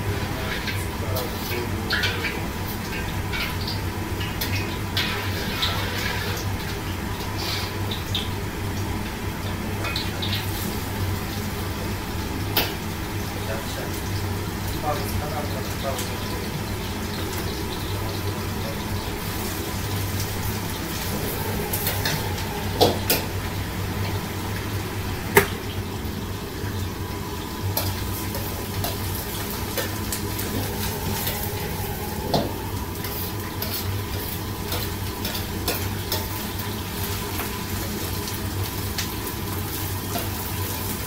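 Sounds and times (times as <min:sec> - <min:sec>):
vegetables sizzling in oil: 0:00.0 - 0:41.0
steady low hum: 0:18.1 - 0:37.8.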